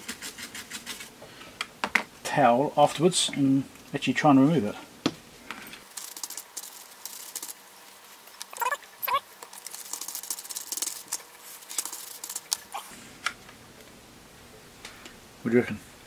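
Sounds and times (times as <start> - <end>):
paper towel scrubbing circuit board: 5.9 - 12.9.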